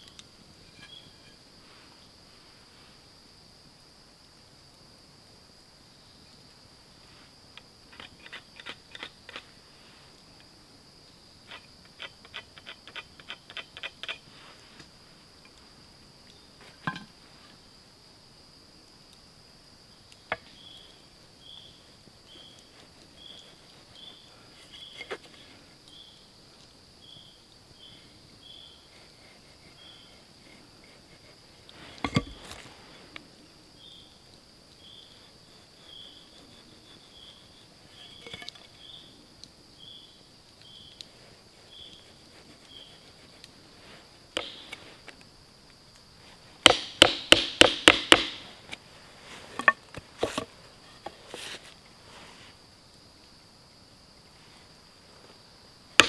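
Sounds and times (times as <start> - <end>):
high insect drone: 0.0 - 56.0
hammer striking chisel into wood: 46.7 - 48.4.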